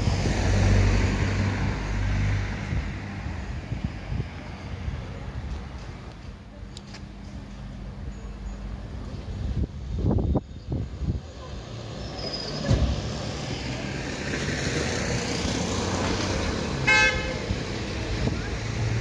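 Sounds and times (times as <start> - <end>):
wind buffets on microphone: 0.0 - 5.8, 9.2 - 11.4, 17.2 - 19.0
street traffic: 0.0 - 19.0
vehicle tyre and engine noise: 0.0 - 19.0.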